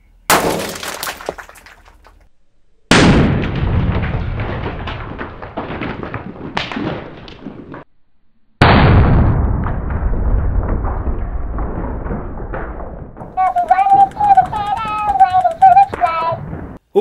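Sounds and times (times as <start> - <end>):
explosive blasts: 2.9 - 7.8, 8.6 - 16.8
rumble and crackle: 3.3 - 7.9, 8.6 - 16.8.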